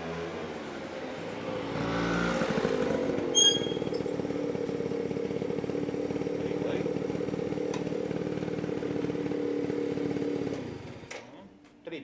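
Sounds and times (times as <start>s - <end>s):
vehicle engine running: 1.6s - 11.1s.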